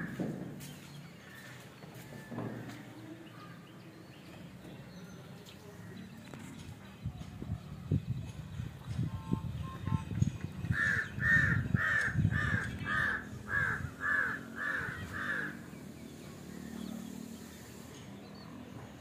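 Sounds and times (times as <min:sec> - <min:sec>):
wind rumbling on microphone: 0:06.5 - 0:15.3
crow cawing: 0:10.7 - 0:15.6.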